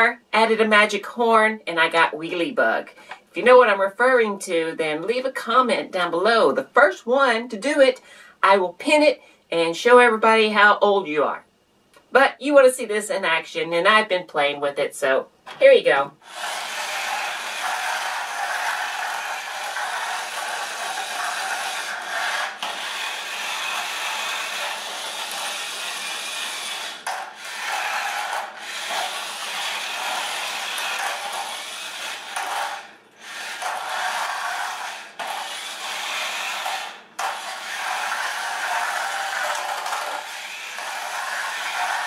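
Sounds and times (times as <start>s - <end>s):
toy car motor whirring: 16.2s - 42.0s.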